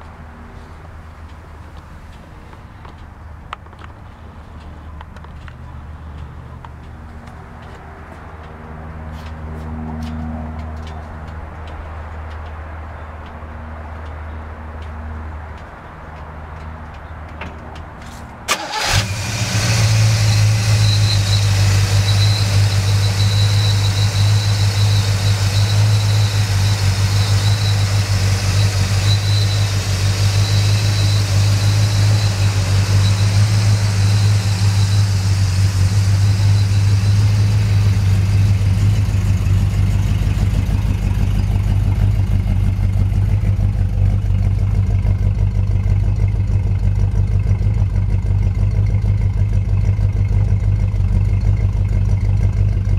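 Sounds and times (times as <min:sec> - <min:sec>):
car engine starting and idling: 0:18.0 - 0:52.9.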